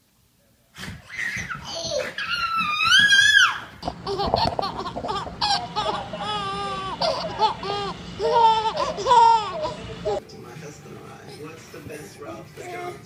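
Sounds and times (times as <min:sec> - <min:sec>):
baby laughing: 0:01.1 - 0:10.2.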